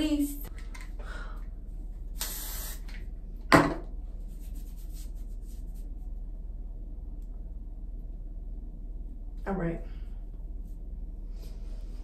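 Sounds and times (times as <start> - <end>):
spray bottle hiss: 2.2 - 3.0
faint rubbing strokes: 4.1 - 6.4, 10.4 - 12.0.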